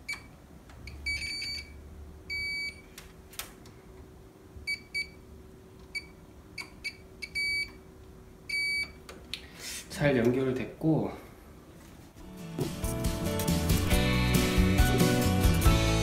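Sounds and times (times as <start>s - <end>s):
multimeter continuity beeps: 0.0s - 2.9s, 4.7s - 5.2s, 5.9s - 7.8s, 8.5s - 9.0s.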